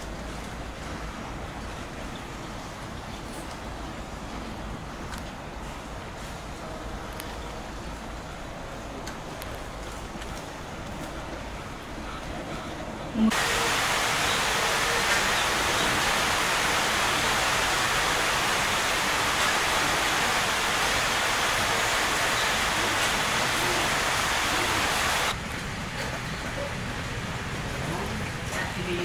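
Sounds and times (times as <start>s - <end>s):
steady rushing hiss: 13.3s - 26.0s.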